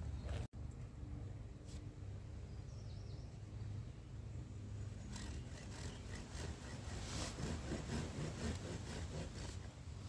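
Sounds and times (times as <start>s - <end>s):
blade scraping wooden stick: 5.1s - 9.8s.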